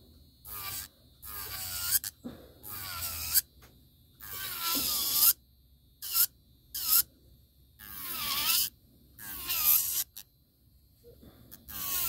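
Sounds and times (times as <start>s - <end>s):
electric nail file grinding: 0.4s - 3.5s, 4.2s - 5.4s, 6.0s - 7.1s, 7.8s - 10.3s, 11.6s - 12.0s.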